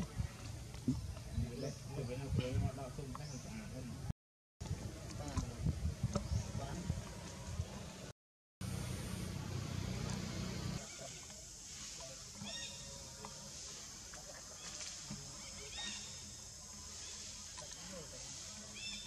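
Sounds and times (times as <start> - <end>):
low rumbling noise: 4.6 - 10.8
steady high hiss: 8.6 - 19.0.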